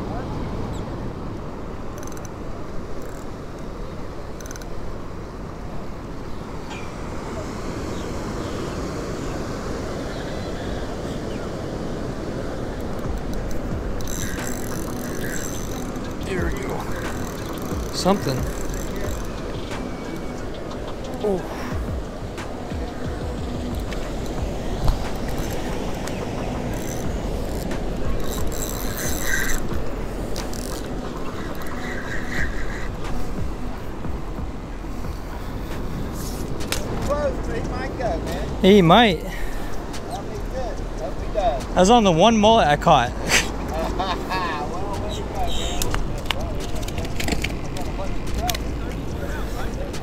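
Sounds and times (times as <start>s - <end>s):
ocean surf washing: 0.0s - 50.0s
fishing reel gears whirring: 13.1s - 20.2s, 24.6s - 33.2s.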